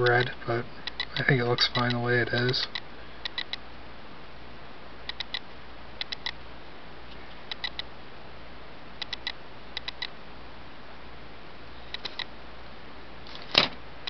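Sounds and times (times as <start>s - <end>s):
light clicks: 0.0s - 3.6s, 9.0s - 10.2s
steady background hiss: 0.0s - 14.0s.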